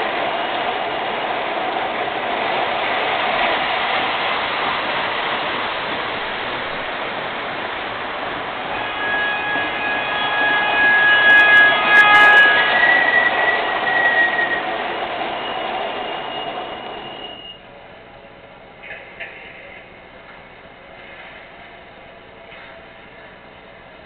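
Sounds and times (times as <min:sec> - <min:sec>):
model train rolling rumble: 0:00.0 - 0:15.1
whining tones: 0:08.0 - 0:17.6.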